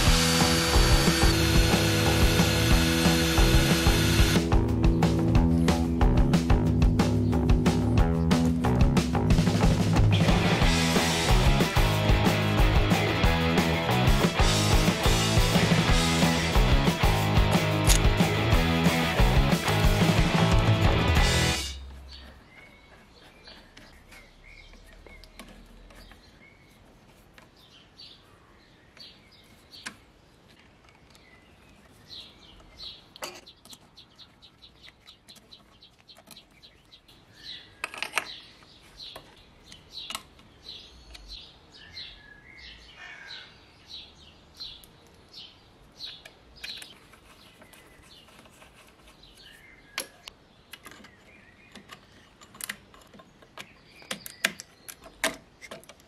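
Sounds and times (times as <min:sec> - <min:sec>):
small metal clicks and taps: 0:37.8 - 0:38.4, 0:50.0 - 0:56.0.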